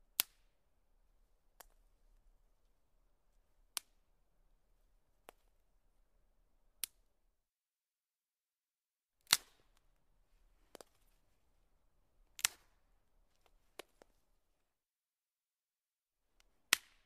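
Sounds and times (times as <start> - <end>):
twigs snapping: 9.3 - 9.7, 10.7 - 11.2, 12.4 - 14.2.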